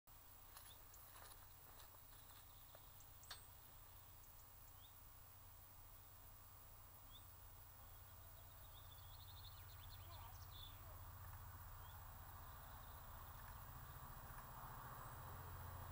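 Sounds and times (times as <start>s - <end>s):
low steady rumble: 0.1s - 15.9s
faint bird chirps: 2.1s - 5.0s, 7.0s - 11.1s.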